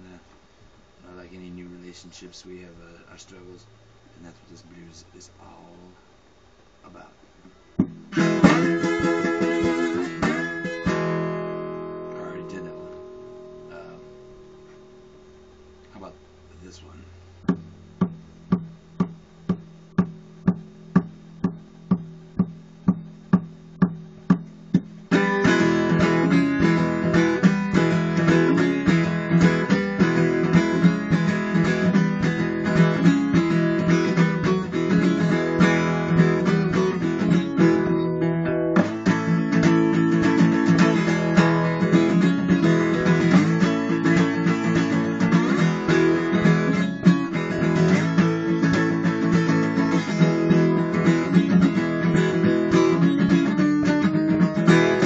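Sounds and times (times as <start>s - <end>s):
steady taps: 7.4s - 8.0s, 17.4s - 25.0s
acoustic guitar blues: 7.7s - 55.0s.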